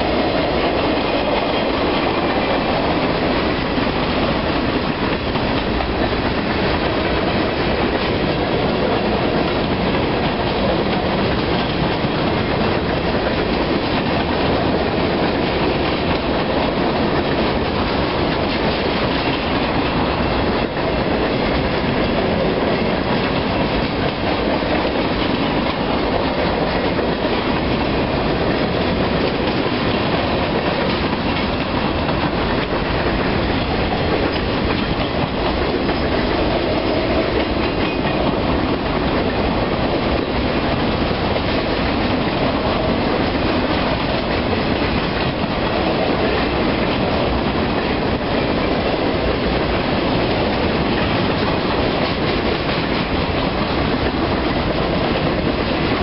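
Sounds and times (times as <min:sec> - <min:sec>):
freight train cars rumbling past: 0:00.0 - 0:56.0.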